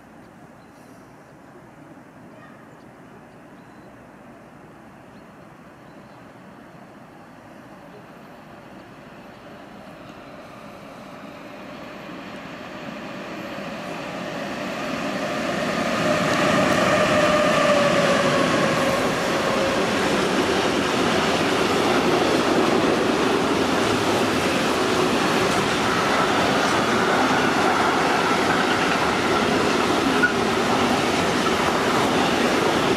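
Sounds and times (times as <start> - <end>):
electric locomotive passing: 7.5 - 32.9
freight wagons rumbling past: 13.3 - 32.9.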